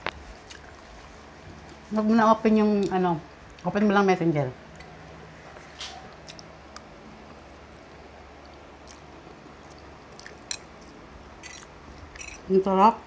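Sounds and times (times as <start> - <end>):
soft chewing: 0.0 - 2.0, 4.7 - 12.5.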